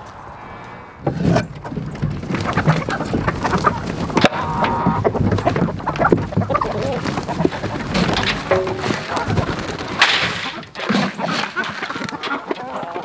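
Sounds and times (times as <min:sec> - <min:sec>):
chickens clucking: 0:00.0 - 0:13.0
chicken long held call: 0:03.5 - 0:05.1.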